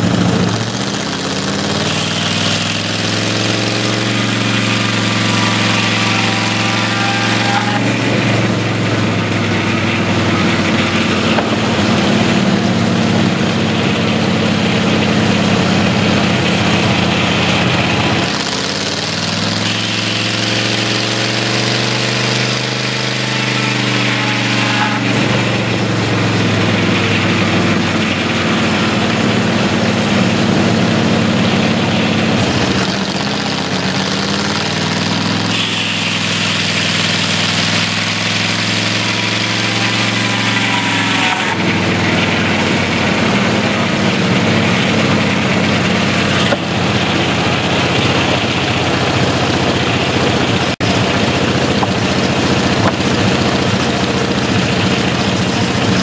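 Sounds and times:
saw blade cutting log: 0.0 - 56.0
sawmill engine running: 0.0 - 56.0.

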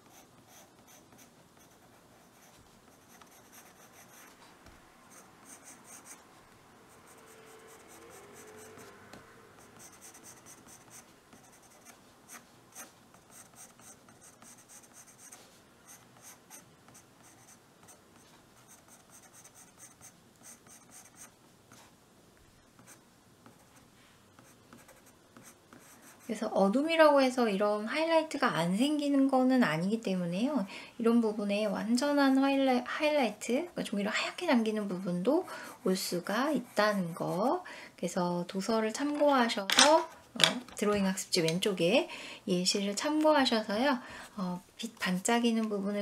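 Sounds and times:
pencil scratching on paper: 0.0 - 4.4, 5.1 - 6.2, 6.9 - 8.9, 9.6 - 18.0, 18.6 - 21.8, 24.4 - 26.4, 35.7 - 37.5.

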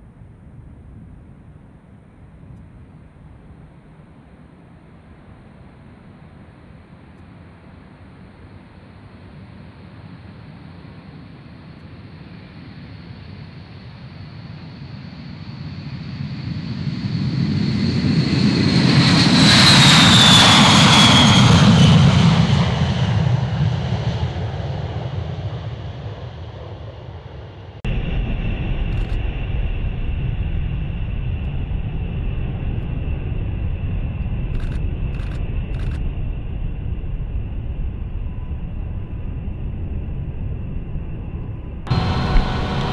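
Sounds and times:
steady jet rumble with high tone: 0.0 - 17.0, 27.8 - 42.9
jet engines roaring: 15.1 - 26.8, 27.9 - 42.9.

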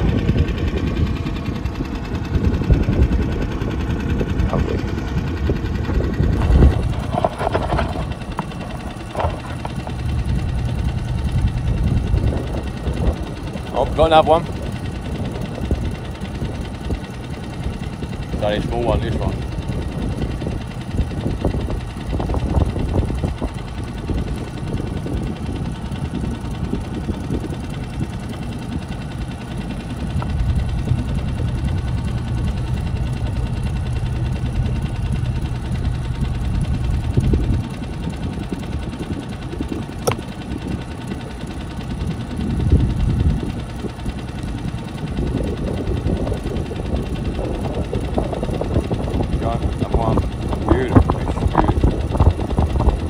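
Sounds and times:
outboard motor running: 0.0 - 53.0
sharp click: 40.0 - 40.3.

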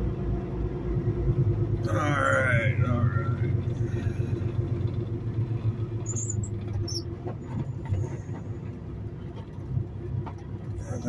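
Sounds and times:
diesel truck engine running: 0.0 - 11.0
short high squeaks: 6.0 - 7.1.

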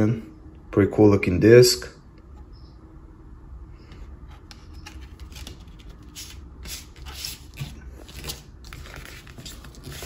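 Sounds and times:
disc and card rubbing and scraping: 4.3 - 10.0.

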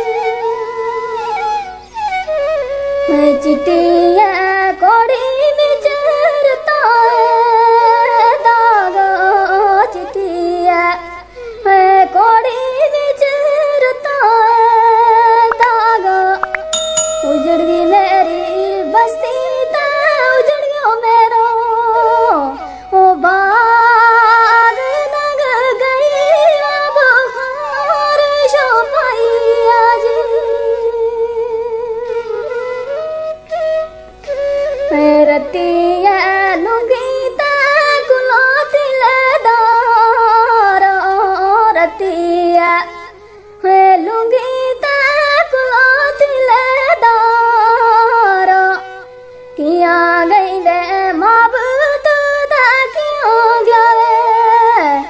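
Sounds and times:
folk song with wavering held notes: 11.9 - 55.0.

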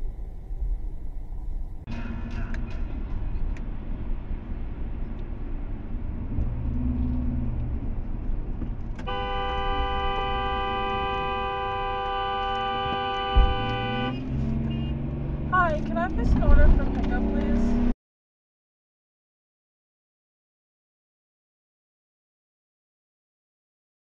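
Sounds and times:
road and tyre noise: 0.0 - 18.0
long car horn blast: 9.0 - 15.0.

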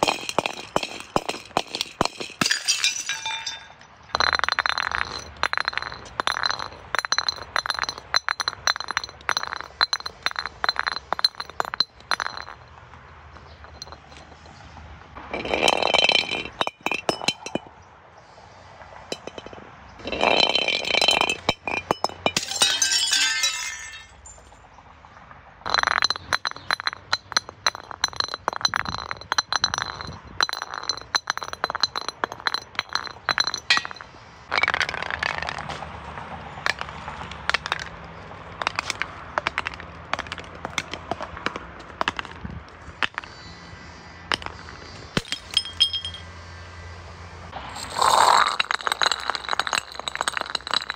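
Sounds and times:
broken glass clinking: 0.0 - 12.6, 19.1 - 24.5, 25.7 - 35.5, 45.2 - 46.2, 47.8 - 50.9
glass bottles breaking: 0.0 - 12.6, 15.3 - 17.6, 19.1 - 24.5, 25.7 - 35.6, 45.2 - 46.2, 47.8 - 50.9.

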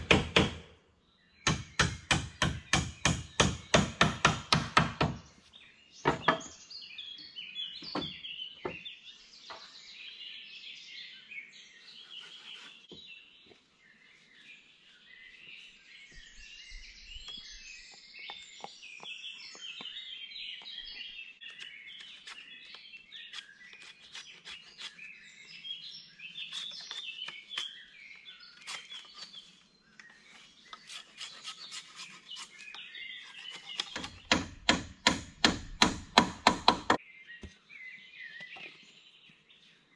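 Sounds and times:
songbirds chirping and singing: 0.0 - 39.9
tool knocking on wood: 6.1 - 6.5, 33.8 - 37.0
chopping strikes: 33.7 - 37.0.

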